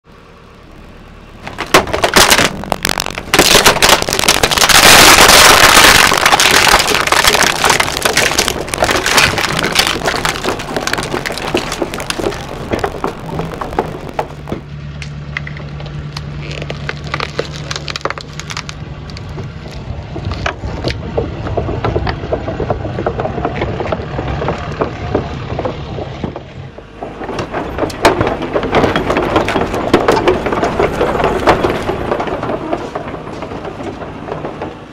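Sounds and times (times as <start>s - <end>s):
excavator engine humming: 0.0s - 34.9s
concrete blocks crunching: 1.4s - 14.7s, 15.4s - 34.9s
plastic casing cracking: 1.5s - 14.6s, 16.2s - 21.0s.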